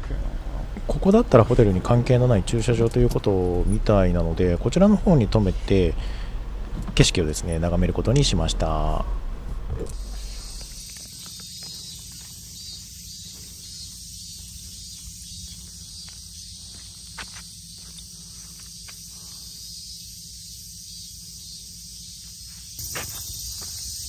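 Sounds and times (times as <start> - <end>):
insects droning: 0.0 - 24.0
faint ticks or footsteps: 9.8 - 24.0.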